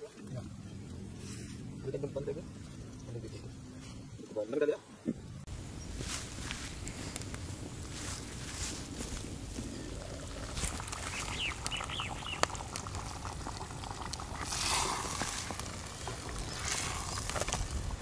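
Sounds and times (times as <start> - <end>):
wet bubbling: 7.2 - 18.0
bird chirps: 11.0 - 12.6.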